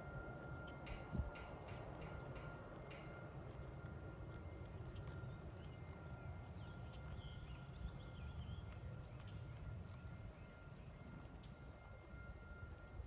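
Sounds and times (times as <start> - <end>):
small birds chirping: 4.1 - 10.6.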